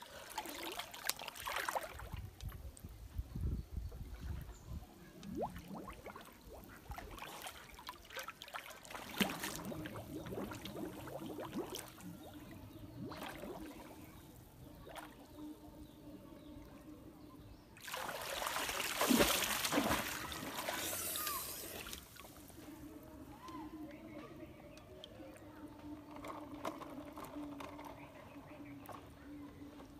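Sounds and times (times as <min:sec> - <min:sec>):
river water sloshing: 0:00.0 - 0:02.4, 0:05.2 - 0:14.3, 0:17.8 - 0:22.6
water splashing: 0:00.0 - 0:02.4, 0:05.2 - 0:14.2, 0:17.8 - 0:22.6.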